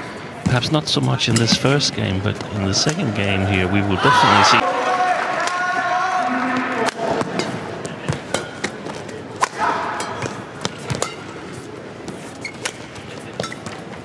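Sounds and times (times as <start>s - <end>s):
indoor hall hum: 0.0s - 14.0s
rackets hitting shuttlecock: 6.8s - 14.0s.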